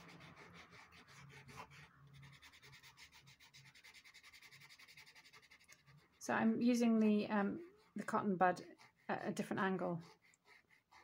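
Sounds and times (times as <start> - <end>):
cotton bud scrubbing paper: 0.0 - 6.4.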